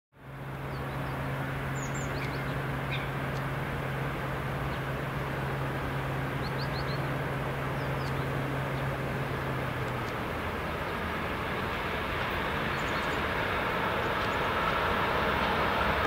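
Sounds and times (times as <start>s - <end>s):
electric train approaching: 0.2s - 16.0s
small birds chirping: 0.6s - 3.6s, 6.3s - 11.2s, 12.5s - 14.6s.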